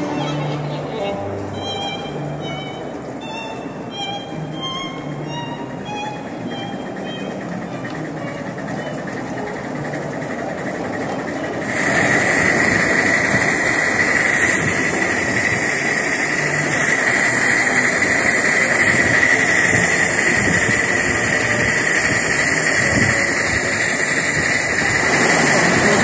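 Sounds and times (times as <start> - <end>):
locomotive rumbling on track: 0.0 - 26.0
steam hissing with whistling tones: 11.6 - 26.0.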